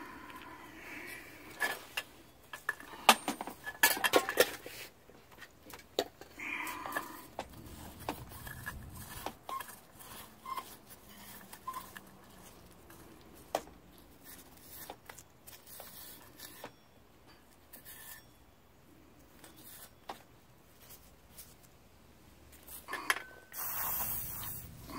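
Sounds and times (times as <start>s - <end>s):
metal parts clicking and knocking: 1.5s - 4.6s.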